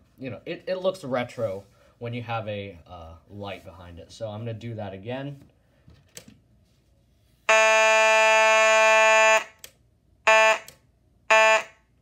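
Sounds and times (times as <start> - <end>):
fire alarm horn blasts: 7.5 - 9.6, 10.2 - 12.0.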